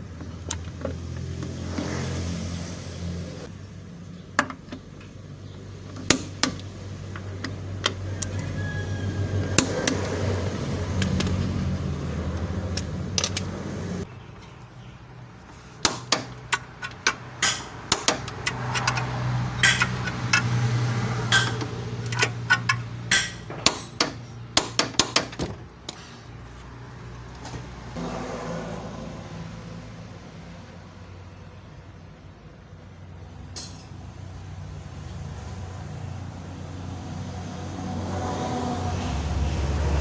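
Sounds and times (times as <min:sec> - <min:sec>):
ratchet wrench clicking: 0:16.4 - 0:20.6.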